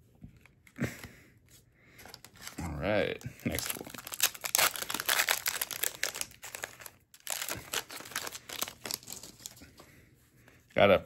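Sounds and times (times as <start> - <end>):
plastic wrapper crinkling: 2.0 - 9.8.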